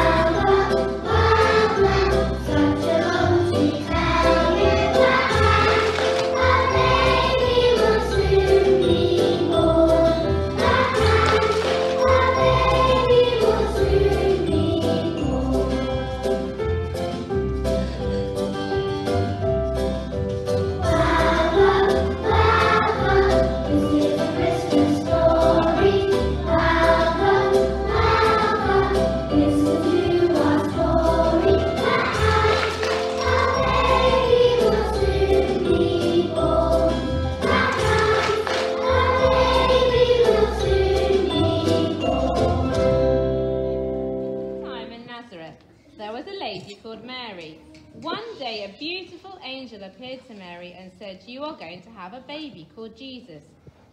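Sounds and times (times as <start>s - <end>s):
children singing: 0.0s - 16.1s, 20.8s - 42.7s.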